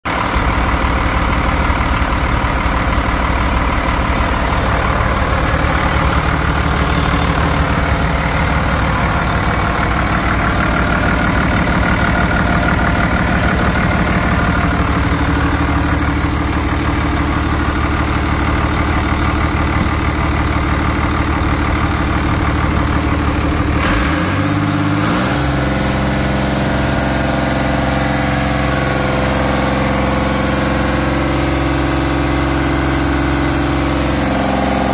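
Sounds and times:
diesel engine idling: 0:00.1 - 0:34.9.

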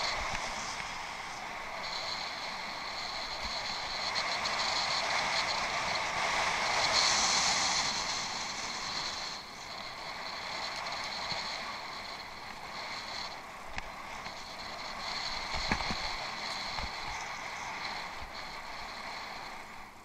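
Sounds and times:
bicycle tyres on rough ground: 0:00.0 - 0:20.0
wind on microphone: 0:00.0 - 0:20.0.

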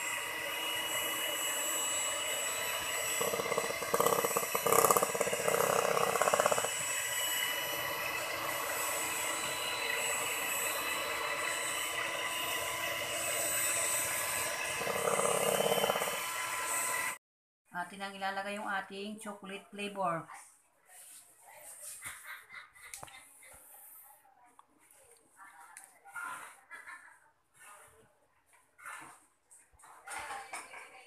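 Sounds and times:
electric hand mixer whipping cream: 0:00.0 - 0:17.2.

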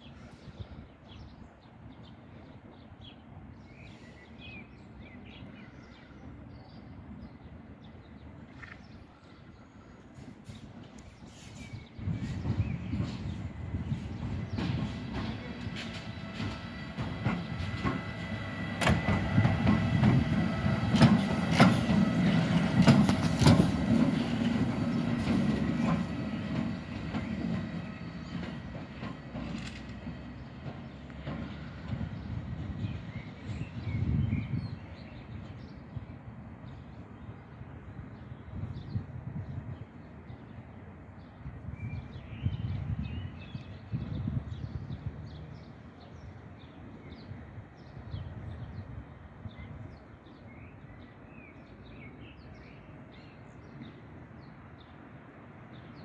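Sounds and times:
small birds chirping: 0:00.0 - 0:36.1
train wheels rumbling on rails: 0:09.2 - 0:50.5
wheels clicking over rail joints: 0:14.5 - 0:32.3.

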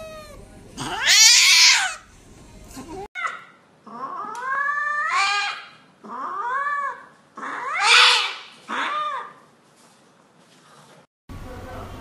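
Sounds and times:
cat yowling: 0:00.0 - 0:02.0, 0:02.8 - 0:09.4.

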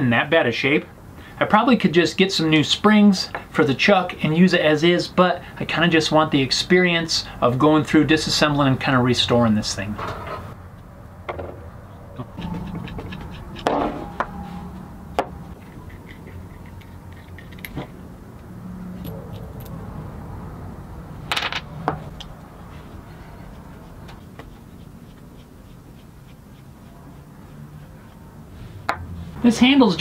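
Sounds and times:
metal parts clinking on wood: 0:15.7 - 0:17.9.

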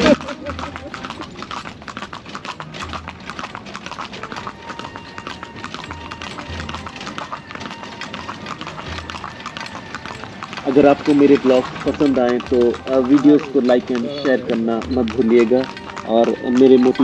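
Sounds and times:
horse hooves clip-clopping on pavement: 0:00.0 - 0:17.0.

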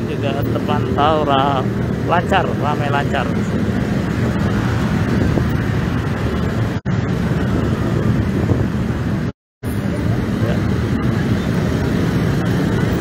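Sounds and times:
cars and motorcycles passing: 0:00.0 - 0:13.0.

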